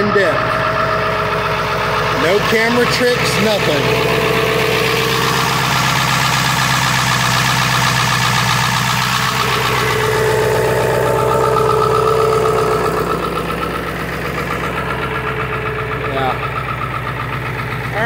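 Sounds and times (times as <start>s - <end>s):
diesel engine idling with clatter: 0.0s - 18.0s.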